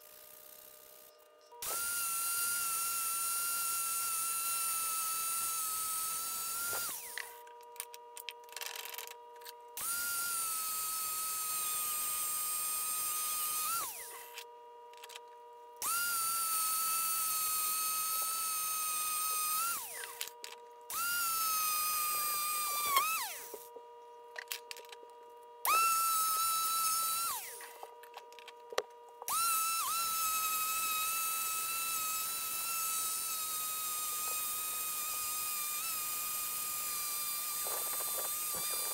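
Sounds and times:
drill wheel whining on steel: 0:00.0 - 0:07.5, 0:09.8 - 0:14.4, 0:15.8 - 0:23.7, 0:25.6 - 0:27.9, 0:29.2 - 0:38.9.

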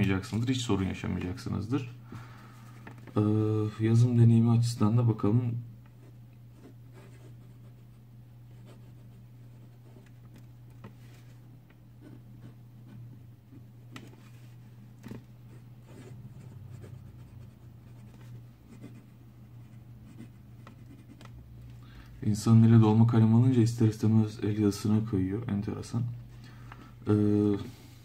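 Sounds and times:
steady low hum: 0:00.0 - 0:28.0
pen nib scratching on paper: 0:19.7 - 0:21.3.

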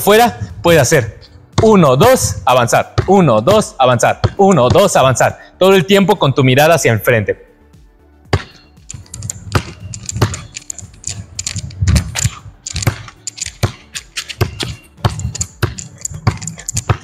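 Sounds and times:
basketball bouncing on concrete: 0:00.4 - 0:05.1, 0:08.3 - 0:17.0
sneakers scuffing on concrete: 0:09.4 - 0:17.0.

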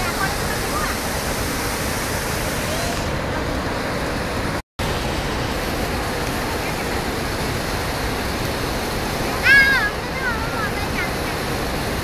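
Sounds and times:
floodwater pouring over spillway: 0:00.0 - 0:12.0.

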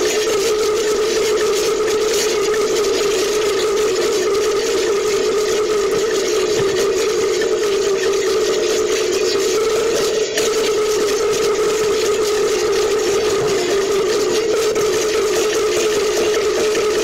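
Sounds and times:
sustained ringing tone: 0:05.1 - 0:16.6.

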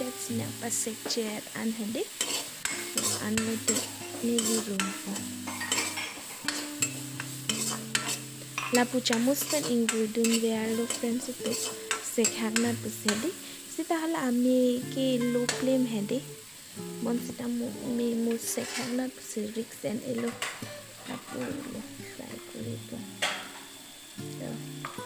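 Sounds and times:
shrimp sizzling: 0:00.0 - 0:25.0
metal ladle scraping iron pan: 0:02.2 - 0:12.0, 0:18.5 - 0:19.0.

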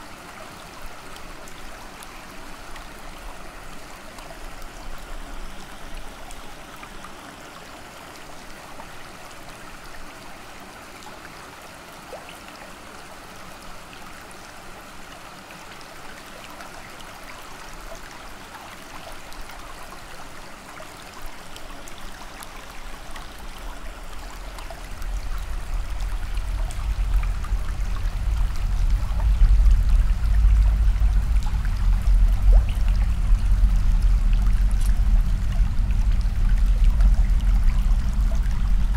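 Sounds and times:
water running and trickling: 0:00.1 - 0:38.9
deep low rumble: 0:24.3 - 0:38.9.

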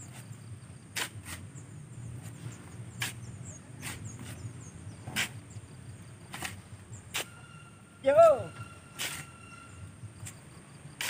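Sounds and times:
shovels scraping wet sand: 0:00.0 - 0:01.6, 0:02.2 - 0:04.5, 0:05.1 - 0:05.4, 0:06.3 - 0:07.5, 0:08.9 - 0:09.5.

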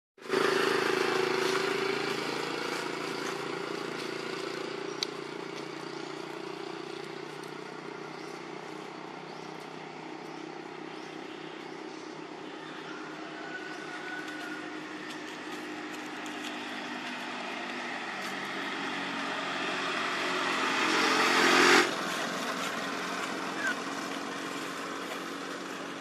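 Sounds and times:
passing vehicle engine hum: 0:00.2 - 0:26.0.

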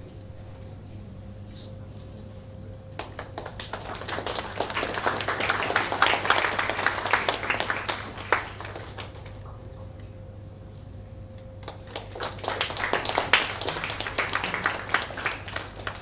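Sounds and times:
group of people applauding: 0:03.0 - 0:09.6, 0:11.6 - 0:16.0.

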